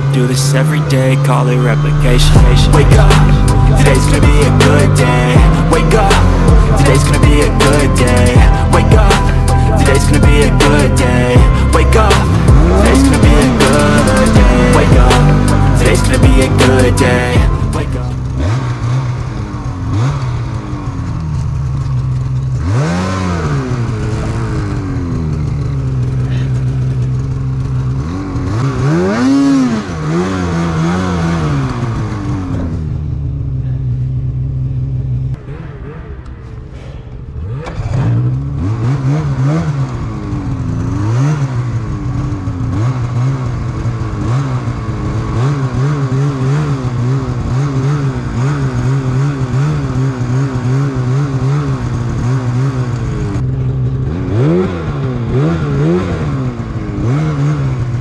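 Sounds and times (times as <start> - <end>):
snowmobile engine revving: 0.0 - 58.0.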